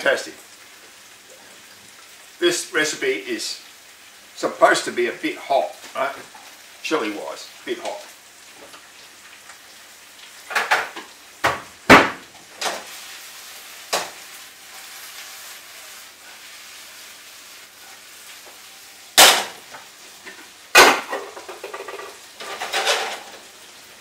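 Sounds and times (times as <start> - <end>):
food sizzling in a pan: 0.0 - 24.0
kitchen pans and utensils clattering: 10.4 - 13.0, 19.2 - 23.5.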